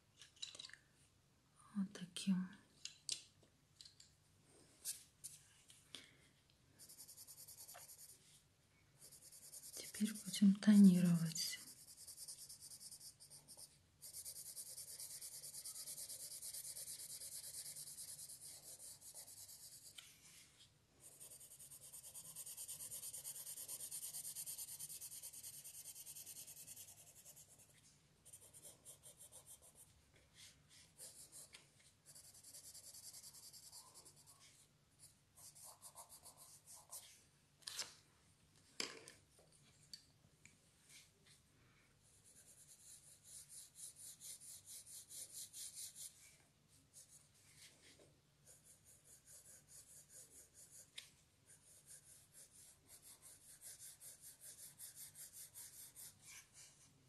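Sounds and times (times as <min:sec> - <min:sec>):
pencil scratching on paper: 0:06.8 - 0:08.3, 0:09.0 - 0:20.1, 0:21.0 - 0:37.1, 0:42.0 - 0:46.2, 0:47.9 - 0:56.8.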